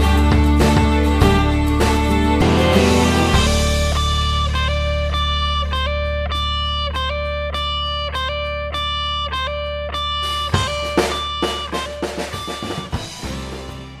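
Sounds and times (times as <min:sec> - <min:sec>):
low bass: 0:00.0 - 0:14.0
plucked guitar: 0:00.0 - 0:14.0
drum hits: 0:10.3 - 0:14.0.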